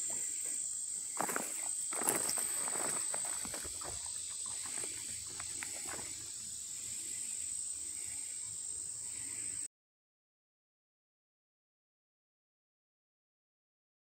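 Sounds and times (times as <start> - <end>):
insects singing high note: 0.0 - 9.7
footsteps scuffing on loose soil: 0.2 - 6.2.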